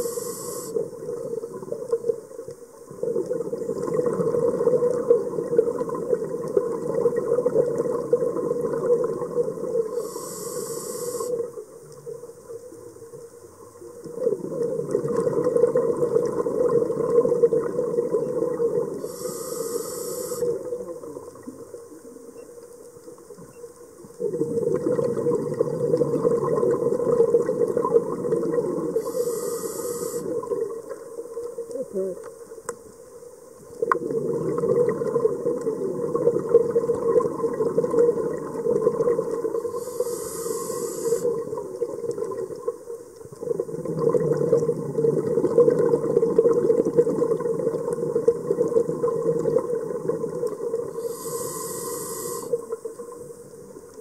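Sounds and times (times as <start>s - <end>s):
regulator hiss: 0.0s - 1.0s, 9.9s - 11.6s, 19.0s - 20.7s, 28.9s - 30.4s, 39.5s - 41.4s, 50.9s - 53.5s
regulator breathing bubbles: 33.9s - 42.5s, 43.4s - 53.2s.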